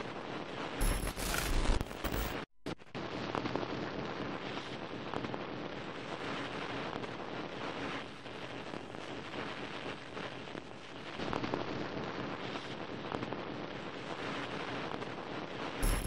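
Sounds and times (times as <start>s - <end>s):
crackling static hiss: 0.0s - 16.0s.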